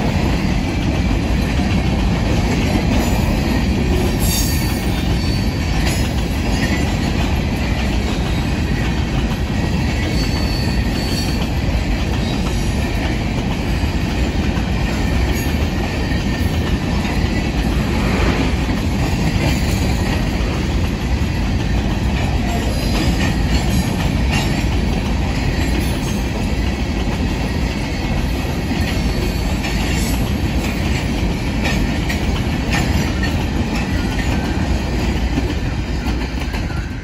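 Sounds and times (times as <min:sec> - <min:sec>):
steel wheels rumbling on rail: 0:00.0 - 0:37.0
wheels clicking over rail joints: 0:18.7 - 0:37.0.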